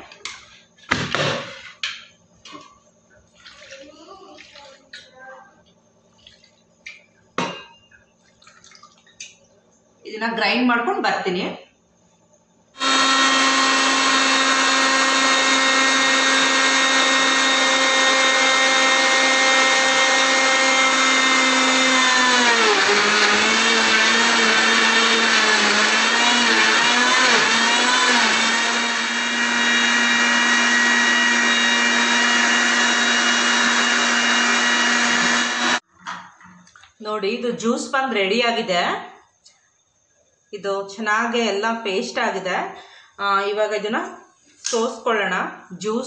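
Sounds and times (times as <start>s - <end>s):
blender motor running: 12.8s - 35.8s.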